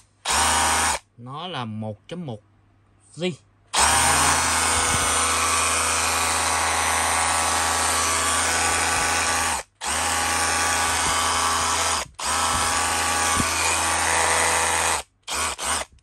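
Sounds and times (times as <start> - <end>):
rotary hammer motor whine: 3.8 - 15.9.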